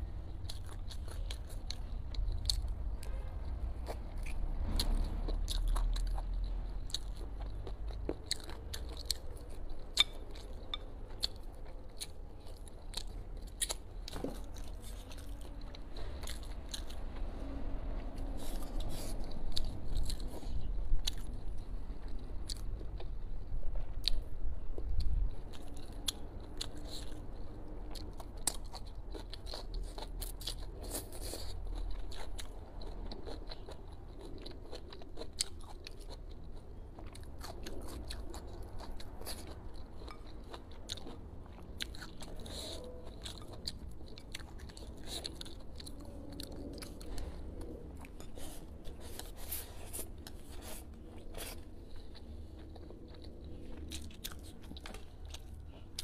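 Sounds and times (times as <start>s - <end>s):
person chewing and crunching: 0.0s - 56.0s.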